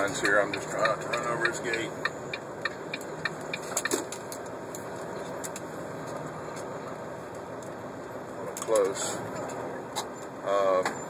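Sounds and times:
truck engine and road drone: 0.0s - 11.0s.

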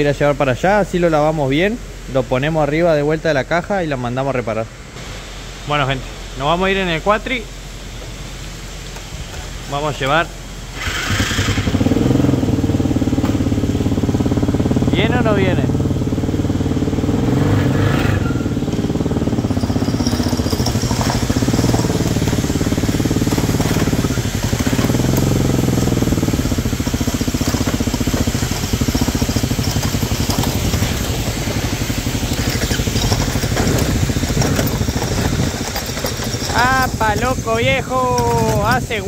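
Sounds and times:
quad bike engine running: 10.7s - 39.0s.

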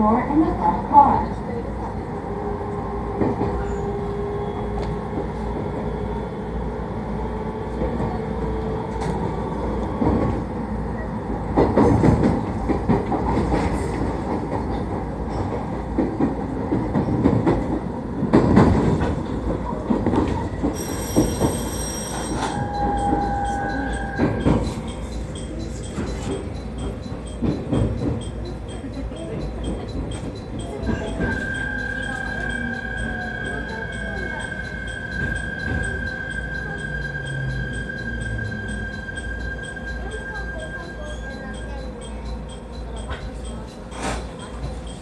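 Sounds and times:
train running rumble: 0.0s - 45.0s
train wheels squealing: 3.1s - 6.6s, 19.6s - 28.8s, 30.2s - 42.5s.

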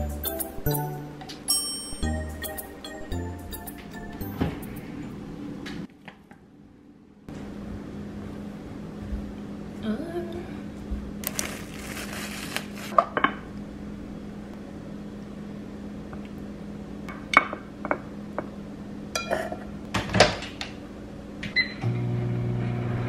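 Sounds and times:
louder appliance hum: 0.0s - 23.0s
low appliance hum: 0.0s - 23.0s
plastic cling wrap rustling: 11.2s - 13.0s.

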